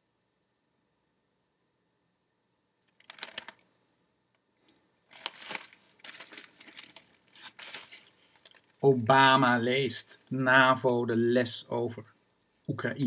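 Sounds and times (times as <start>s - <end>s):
newspaper pages rustling: 3.0s - 3.6s, 5.1s - 8.8s.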